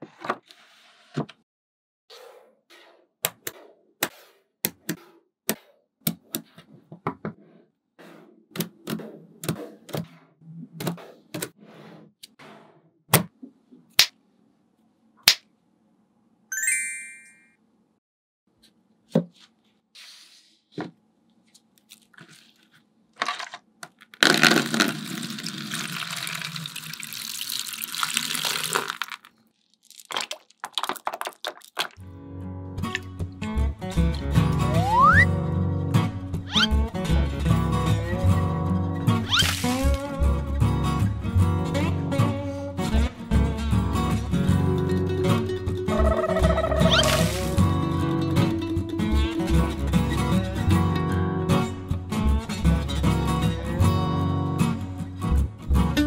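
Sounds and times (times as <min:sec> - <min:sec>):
water pouring: 0:24.3 - 0:32.0, 0:39.3 - 0:40.0, 0:46.9 - 0:47.6.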